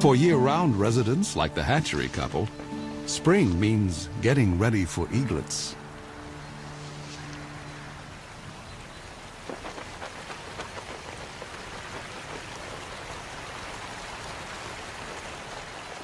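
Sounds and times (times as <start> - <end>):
rain falling: 0.0 - 16.0
raindrops pattering on a surface: 7.2 - 16.0.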